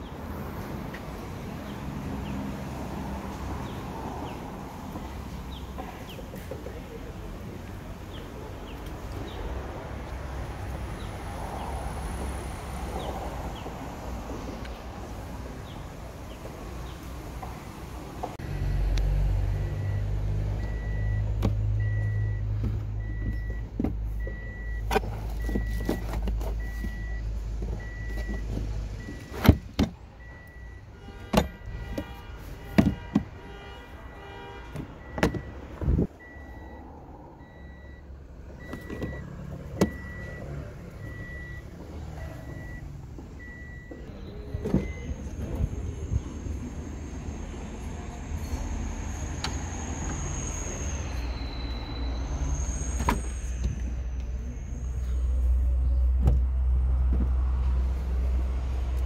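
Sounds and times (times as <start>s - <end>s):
car warning beeper: 19.5s - 27.2s, 27.8s - 33.2s, 33.9s - 45.4s
knocks of car parts handled: 32.8s - 33.3s.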